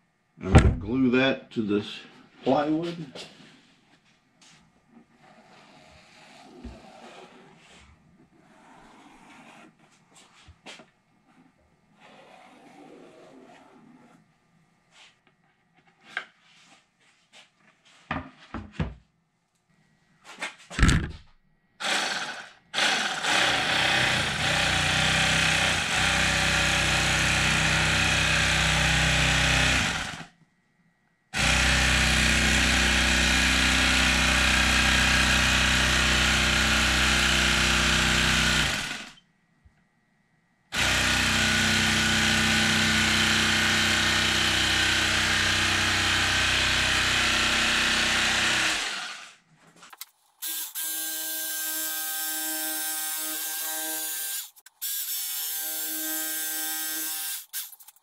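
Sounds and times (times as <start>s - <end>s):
electric knife sawing foam: 5.2s - 9.8s, 21.8s - 30.3s, 31.4s - 39.2s, 40.7s - 49.4s, 50.4s - 57.9s.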